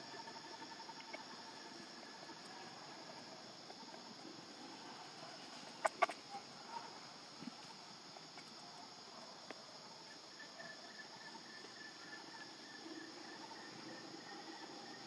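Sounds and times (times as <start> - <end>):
faint drone of insects: 0.0 - 15.0
short sharp animal calls: 5.8 - 6.4.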